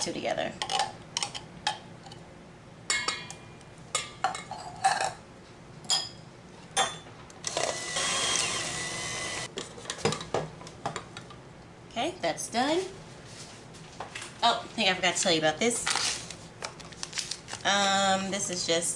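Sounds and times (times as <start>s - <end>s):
electric hand mixer whining: 7.5s - 9.5s.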